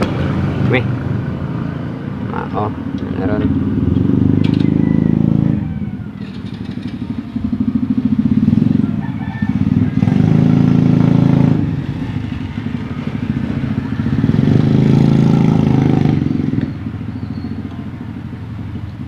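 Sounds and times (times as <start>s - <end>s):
small engine running: 6.2s - 7.6s.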